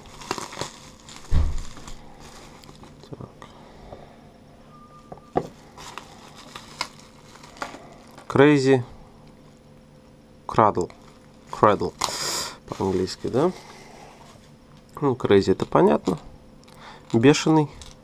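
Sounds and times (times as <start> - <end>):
bubble wrap crinkling: 0.0 - 3.2, 5.5 - 8.7, 10.8 - 14.6, 17.0 - 18.0
dull thump: 1.3 - 1.7.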